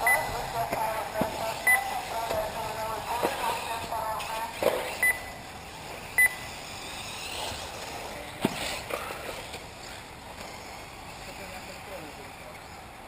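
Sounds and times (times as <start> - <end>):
high electronic beep: 0.0 - 0.4, 5.0 - 5.4, 6.2 - 6.5
faint outdoor background: 0.0 - 13.0.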